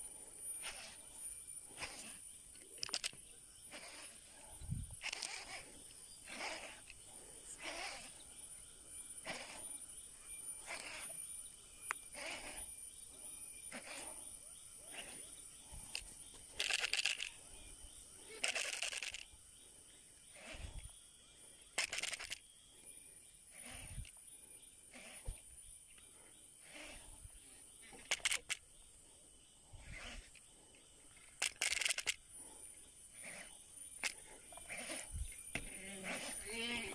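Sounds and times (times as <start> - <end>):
fishing reel winding: 5.0 - 5.6, 16.6 - 17.3, 18.4 - 19.2, 21.8 - 22.4, 31.4 - 32.2.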